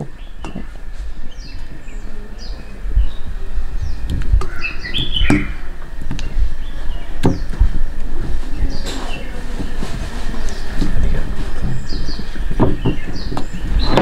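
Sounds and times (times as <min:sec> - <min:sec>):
small birds chirping: 0:00.0 - 0:14.0
dull thumps: 0:09.5 - 0:14.0.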